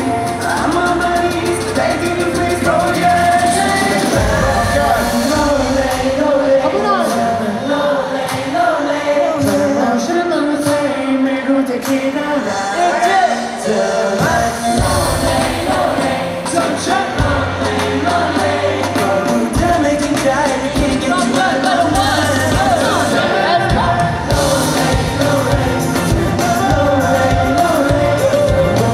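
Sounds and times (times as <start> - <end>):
bass guitar: 0.0 - 7.0, 14.2 - 28.9
drums: 0.0 - 28.9
keyboard: 0.0 - 28.9
male voices singing: 0.0 - 28.9.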